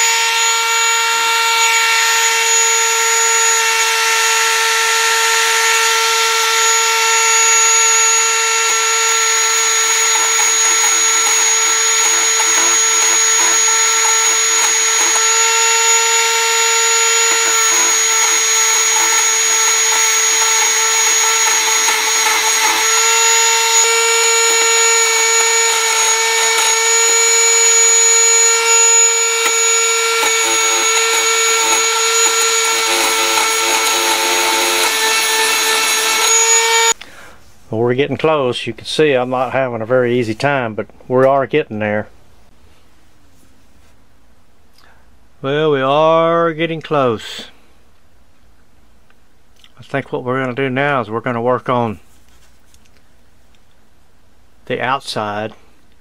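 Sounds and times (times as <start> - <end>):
rotary tool whining: 0.0 - 37.0.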